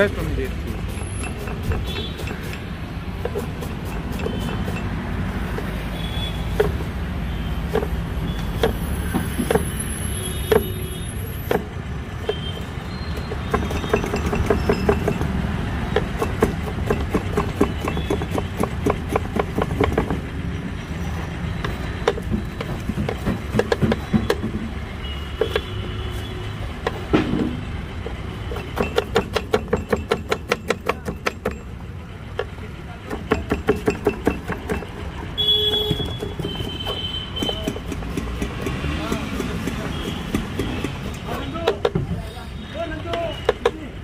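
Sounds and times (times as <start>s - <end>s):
street traffic rumble: 0.0s - 44.0s
knife chopping on wooden board: 8.6s - 9.7s, 13.4s - 20.2s, 21.6s - 24.6s, 28.5s - 31.6s, 32.4s - 35.0s, 35.7s - 42.1s.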